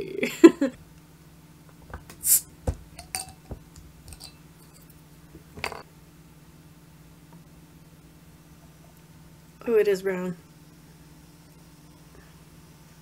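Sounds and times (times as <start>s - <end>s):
bottle cap hiss: 2.2s - 3.4s
glass clinks and knocks: 2.7s - 4.8s, 5.6s - 5.8s.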